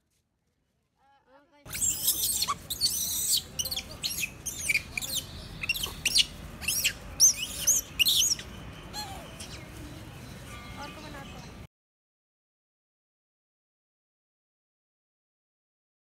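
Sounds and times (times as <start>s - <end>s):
high-pitched chirping calls: 1.7s - 11.6s.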